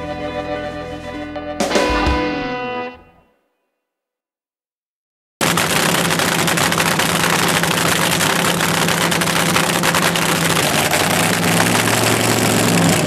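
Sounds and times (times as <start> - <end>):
car engine idling: 5.8 - 13.0.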